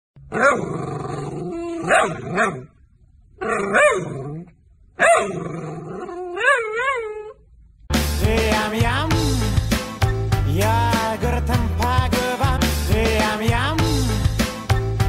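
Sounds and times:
dog whining and howling: 0:00.3 - 0:02.7, 0:03.4 - 0:07.5.

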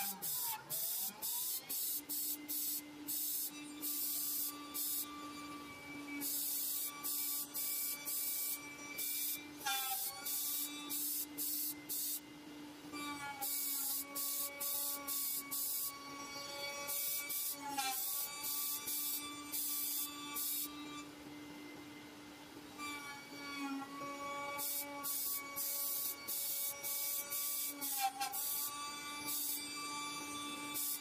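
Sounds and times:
choppy hiss of foam cutting: 0:00.0 - 0:05.3, 0:06.1 - 0:12.3, 0:13.4 - 0:16.0, 0:24.6 - 0:29.6
router spindle whine: 0:00.0 - 0:12.3, 0:22.7 - 0:31.0.

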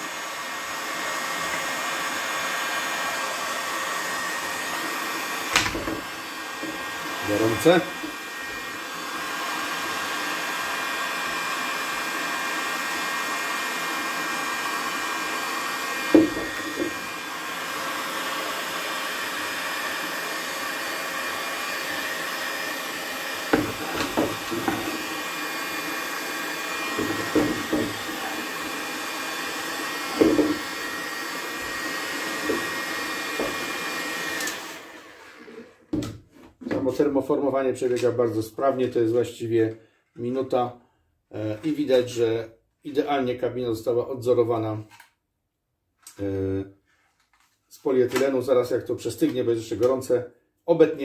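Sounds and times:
heat gun fan whine: 0:00.0 - 0:35.6
plastic bottle knocks: 0:05.6 - 0:06.0, 0:16.2 - 0:16.9.

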